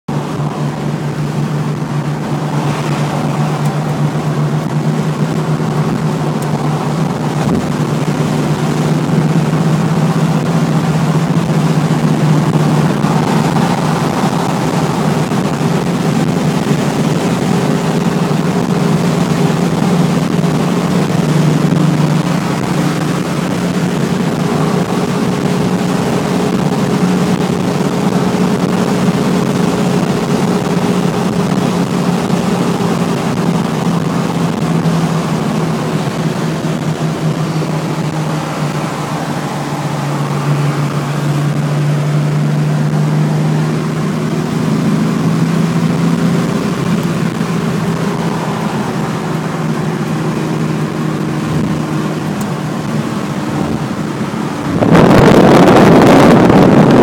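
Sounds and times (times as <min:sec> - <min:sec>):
car engine droning: 0:00.0 - 0:57.0.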